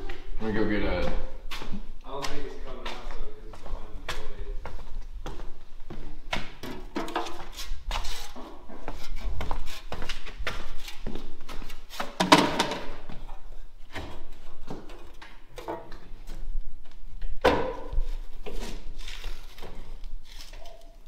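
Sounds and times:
broom sweeping concrete floor: 7.1 - 12.2.

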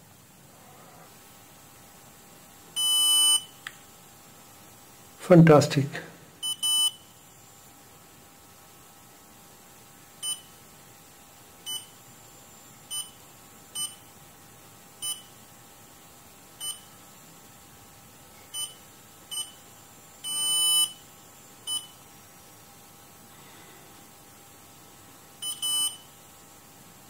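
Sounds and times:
thermostat buzzer beeping: 2.8 - 3.6, 6.4 - 7.1, 10.2 - 10.6, 11.6 - 12.0, 12.9 - 14.1, 15.0 - 15.4, 16.6 - 17.0, 18.5 - 19.6, 20.2 - 22.0, 25.4 - 26.1.

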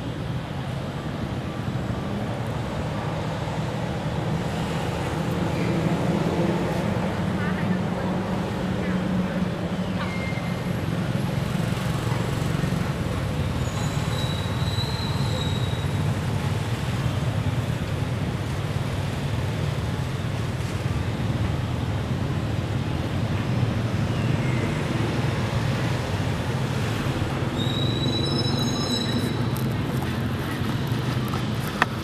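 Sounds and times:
faint high whistle: 13.6 - 16.0, 27.6 - 29.4.

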